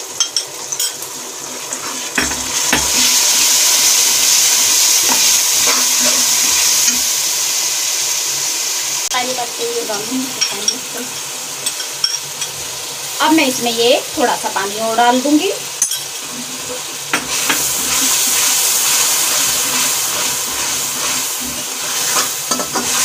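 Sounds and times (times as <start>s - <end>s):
food sizzling in hot oil: 0.0s - 23.0s
steel spatula scraping metal pan: 5.0s - 7.0s, 15.9s - 23.0s.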